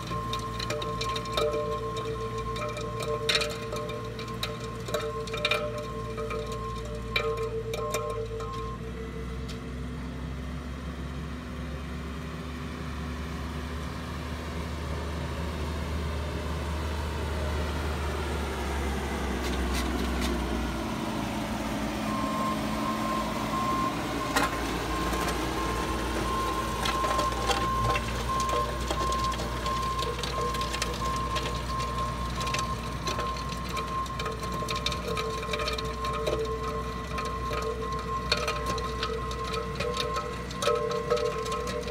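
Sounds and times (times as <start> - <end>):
backup alarm beeping: 0.0 - 9.4, 22.0 - 41.9
diesel engine running: 0.0 - 41.9.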